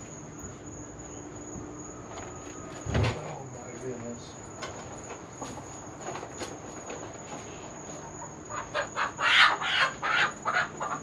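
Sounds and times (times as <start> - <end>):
chicken squawking in alarm: 8.5 - 11.0.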